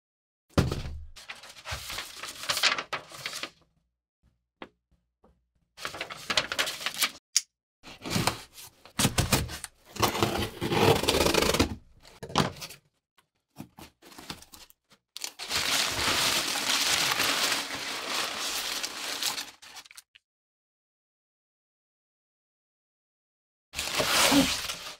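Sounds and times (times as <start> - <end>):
packing paper rustling: 1.2 - 3.5, 5.8 - 7.2, 13.6 - 20.1, 23.8 - 24.9.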